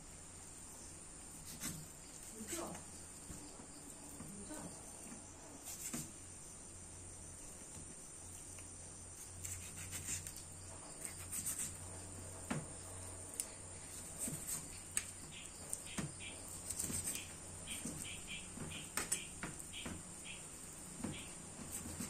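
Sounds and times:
knife cutting raw chicken: 9.4 - 11.8, 13.9 - 18.0.

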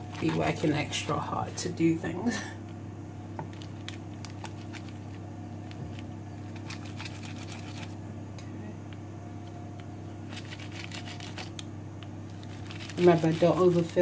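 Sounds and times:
steady low hum: 0.0 - 14.0
pizza cutter crackling on paper: 3.5 - 8.0, 10.3 - 11.6, 12.3 - 14.0.

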